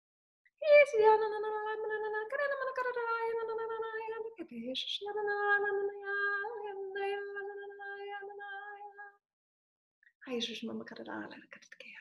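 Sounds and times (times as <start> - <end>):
woman singing wordless tones: 0.6 - 9.2.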